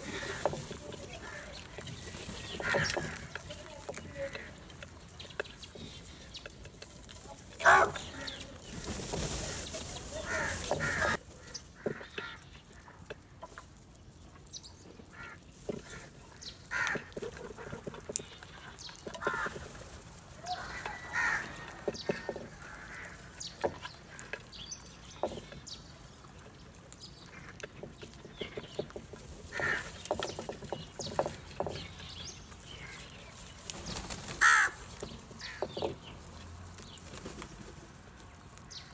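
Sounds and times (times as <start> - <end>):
crows cawing: 0.0 - 4.8, 7.6 - 8.4, 10.1 - 13.0, 15.0 - 17.8, 19.1 - 19.8, 20.4 - 24.4, 29.5 - 30.4, 34.2 - 36.0
rustling noise: 0.0 - 38.9.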